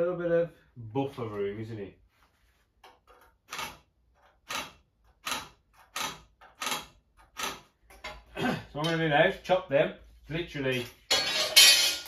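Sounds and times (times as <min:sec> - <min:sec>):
scratching on steel tubes: 0:10.7 - 0:12.0.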